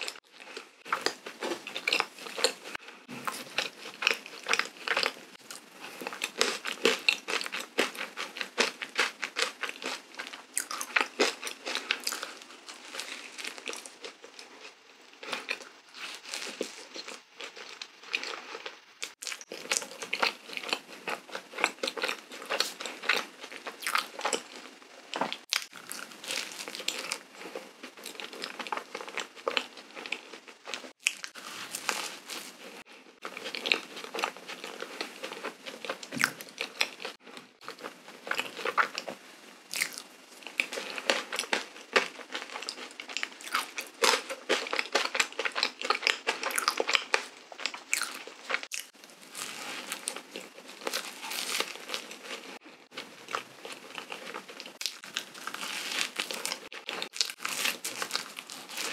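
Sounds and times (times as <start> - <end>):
biting and wet chewing: 0.0 - 58.9.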